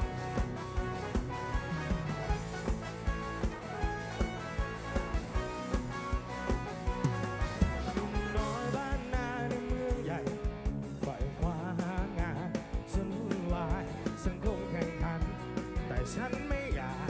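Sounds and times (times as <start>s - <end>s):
drum beat: 0.0s - 17.0s
guitars: 0.0s - 17.0s
person singing: 7.8s - 17.0s.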